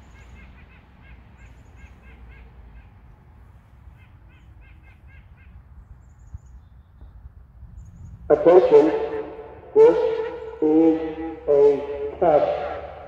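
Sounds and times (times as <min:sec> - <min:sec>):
birds calling: 0:00.0 - 0:13.0
steady low rumble: 0:05.3 - 0:13.0.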